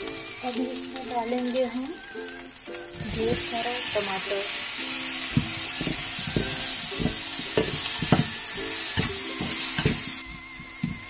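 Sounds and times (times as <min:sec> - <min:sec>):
tomatoes sizzling in oil: 0:00.0 - 0:11.0
metal spatula scraping a pan: 0:05.2 - 0:10.3.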